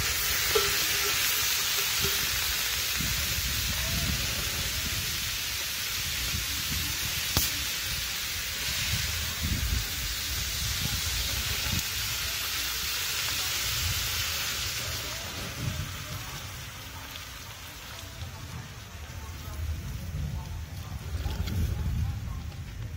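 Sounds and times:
steady hiss: 0.0s - 22.9s.

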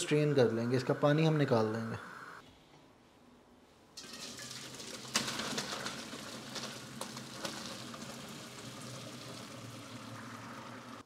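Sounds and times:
water pouring into colander: 4.0s - 11.0s.

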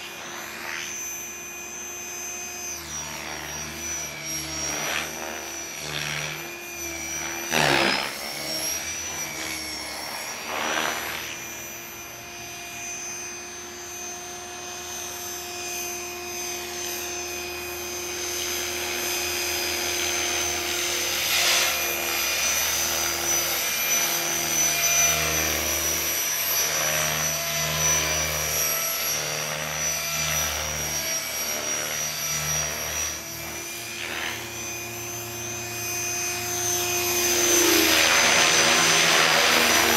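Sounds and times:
electric motor whine: 0.0s - 39.9s
rotor blades whooshing: 3.4s - 11.5s, 32.5s - 39.9s.

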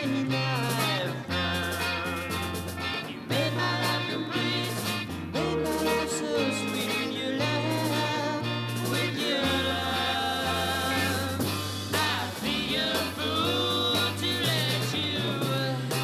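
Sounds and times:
bass line: 0.0s - 16.0s
guitar: 0.0s - 16.0s
person singing: 0.0s - 16.0s.

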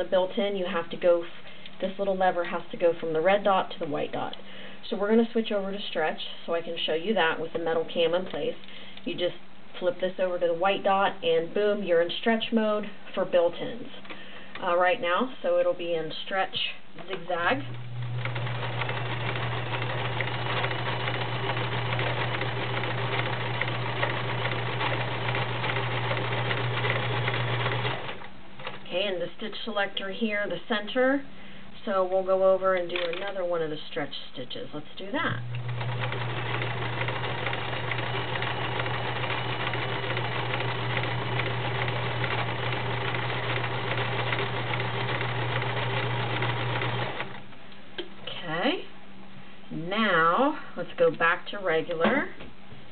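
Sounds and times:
sewing machine running: 17.7s - 29.0s, 35.4s - 47.4s.

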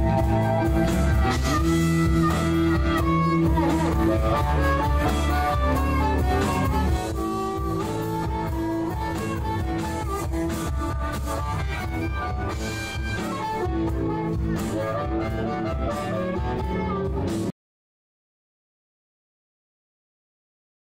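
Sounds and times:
instrumental music with held notes: 0.0s - 17.5s.

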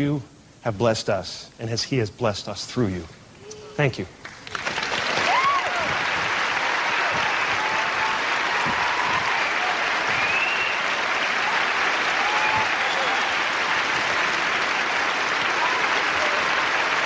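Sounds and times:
audience applauding: 4.2s - 17.0s
cheers: 4.8s - 17.0s.

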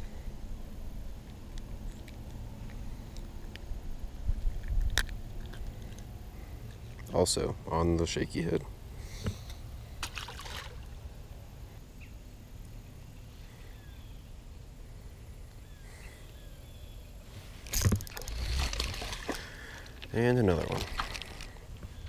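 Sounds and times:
low wind rumble: 0.0s - 22.0s
fish splashing into water: 10.0s - 11.0s, 17.8s - 19.9s.

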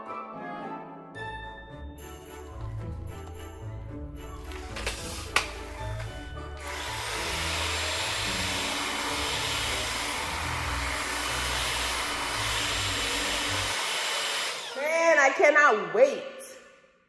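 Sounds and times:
stick vacuum running: 4.4s - 15.1s.

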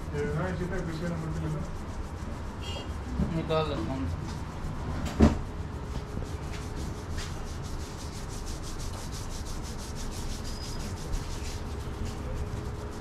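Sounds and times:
fingers rubbing through hair: 0.0s - 13.0s
sharp knock: 5.0s - 5.5s.

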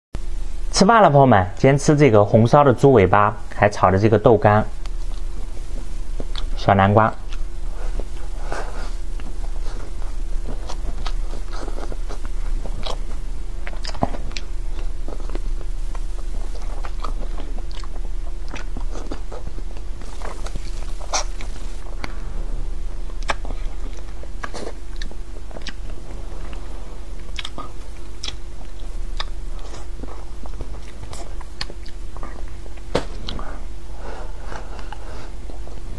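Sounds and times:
steady low hum: 0.2s - 35.9s
man chewing with wet smacks: 4.8s - 22.2s, 23.1s - 33.5s.

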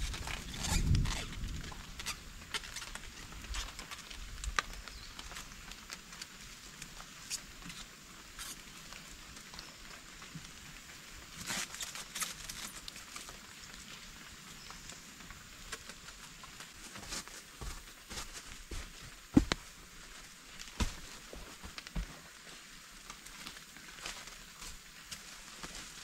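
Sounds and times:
faint steady hiss: 0.0s - 26.0s
plastic wrap crinkling: 11.4s - 13.4s.

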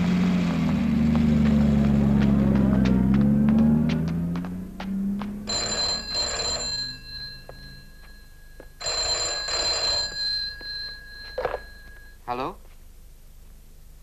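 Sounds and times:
car engine: 0.0s - 8.0s
old bell telephone ringing: 5.5s - 12.4s.

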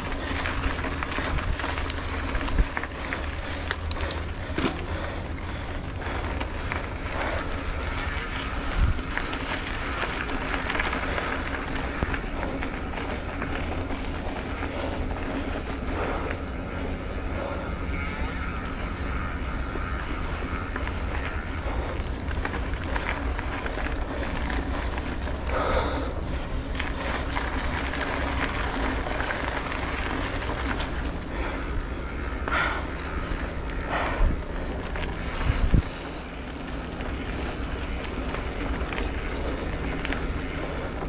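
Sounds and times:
road noise: 0.0s - 41.0s
wind on microphone: 33.9s - 36.3s.

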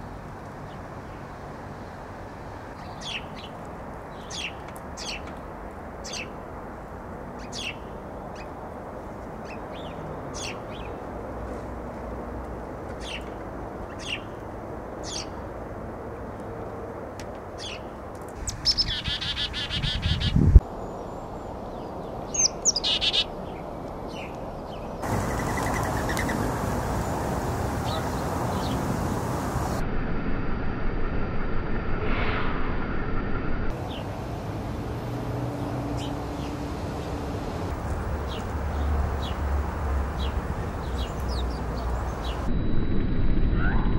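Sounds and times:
sparrows chirping: 2.7s - 5.4s, 6.0s - 6.4s, 7.4s - 8.6s, 9.4s - 11.0s, 12.9s - 14.4s, 15.0s - 15.4s, 17.6s - 29.8s, 33.7s - 42.5s
rapid buzzy bird calling: 18.4s - 20.6s, 22.4s - 23.4s, 25.0s - 29.8s, 37.8s - 42.5s
low rumble: 26.4s - 43.9s.

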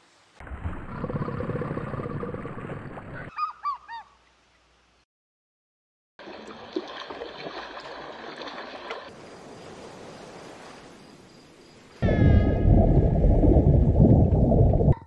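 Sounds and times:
running water: 6.2s - 9.2s.

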